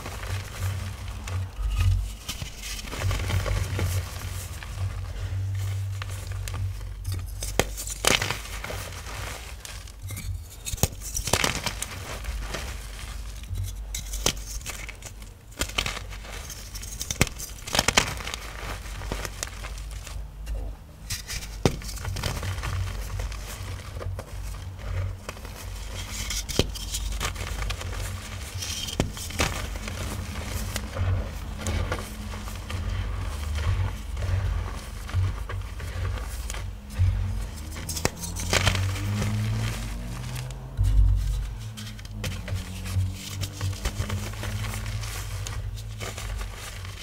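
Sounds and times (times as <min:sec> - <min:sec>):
steady low hum: 0:00.0 - 0:16.4
chalk blocks crunching: 0:00.0 - 0:47.0.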